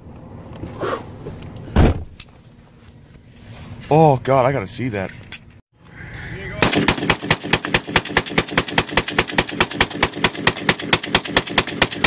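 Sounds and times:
rifle firing rapidly: 6.6 - 12.0.

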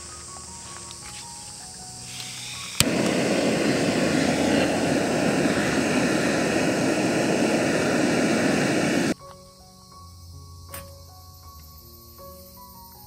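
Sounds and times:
gas torch burner roaring: 2.1 - 9.2.

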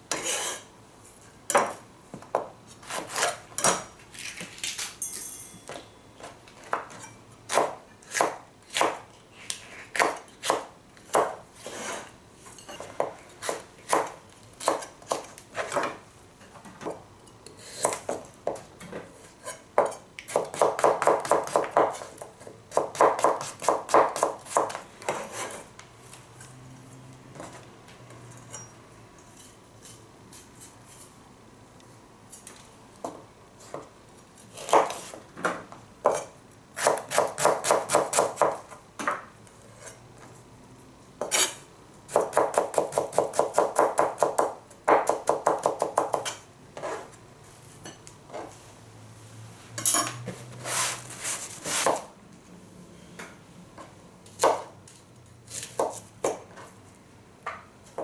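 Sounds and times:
knife chopping on plastic board: 22.7 - 25.2.

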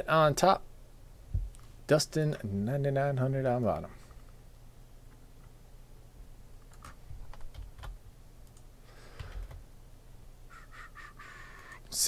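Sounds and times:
keyboard and mouse clicks: 6.6 - 9.6.

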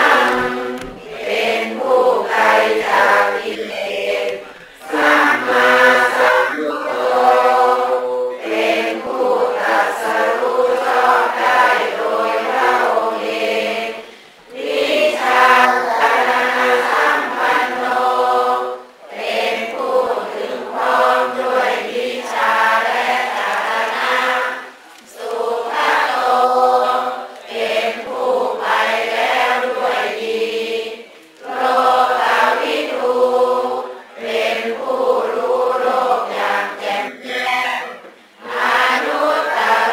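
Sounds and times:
group of voices chanting: 0.0 - 39.9.

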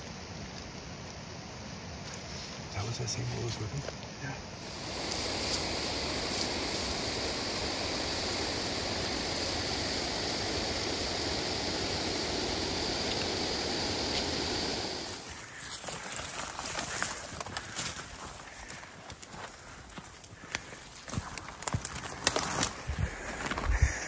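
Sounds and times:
steady rushing noise: 4.2 - 19.2.

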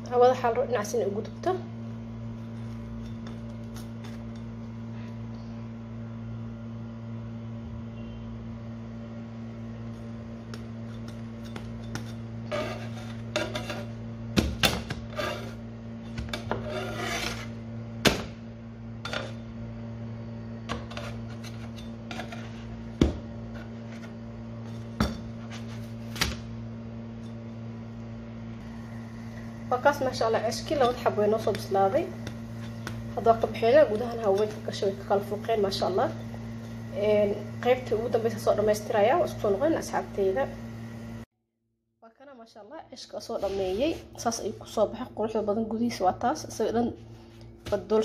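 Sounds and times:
steady low hum: 0.0 - 41.3
metal spatula scraping a pan: 10.8 - 14.0, 15.0 - 15.6, 16.3 - 17.6, 20.7 - 22.8.

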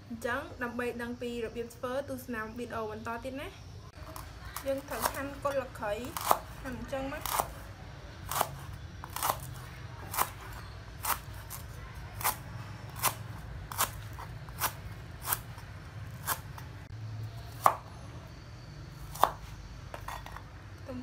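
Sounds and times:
knife chopping on cutting board: 19.1 - 20.4.

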